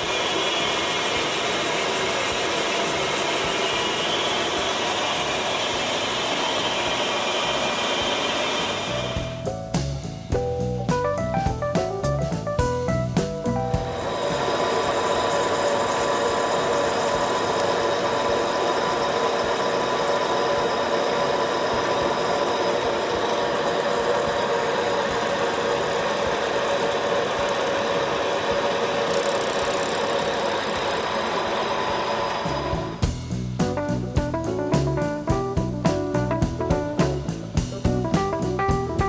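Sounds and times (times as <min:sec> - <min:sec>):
milling machine cutting metal: 0:00.0 - 0:09.4, 0:13.9 - 0:33.0.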